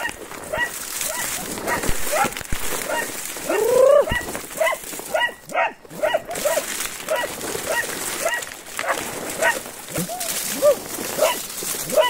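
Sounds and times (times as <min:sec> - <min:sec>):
dogs barking: 0:00.0 - 0:09.8, 0:10.6 - 0:12.0
dog baying: 0:02.9 - 0:09.6, 0:10.6 - 0:12.0.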